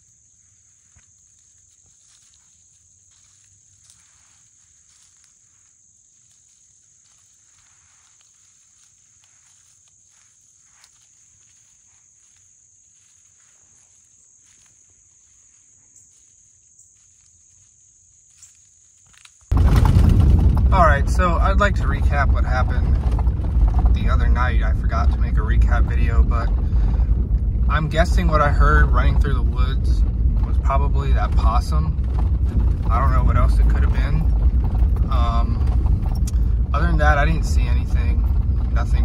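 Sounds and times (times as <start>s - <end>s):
rustling in dry leaves: 0.0s - 20.4s.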